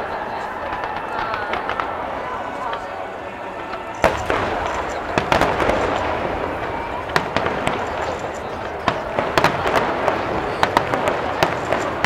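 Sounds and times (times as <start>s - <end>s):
fireworks shells bursting: 3.5s - 12.0s.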